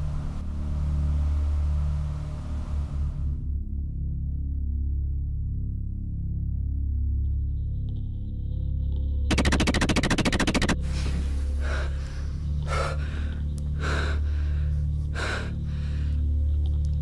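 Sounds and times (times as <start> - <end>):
low droning music: 0.0 - 17.0
harsh stuttering glitch effect: 9.3 - 10.8
man gasping breaths: 10.9 - 16.3.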